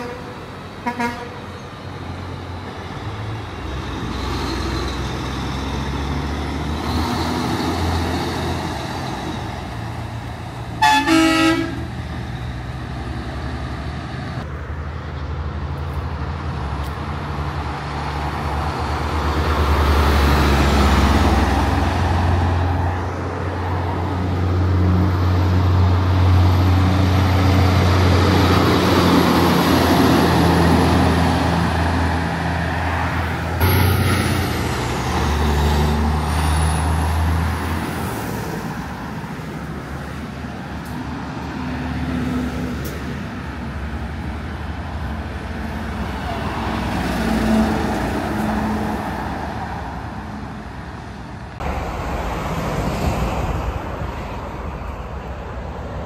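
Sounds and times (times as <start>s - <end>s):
truck horn: 0.0s - 1.5s, 10.8s - 12.0s
trucks passing on highway: 0.0s - 56.0s.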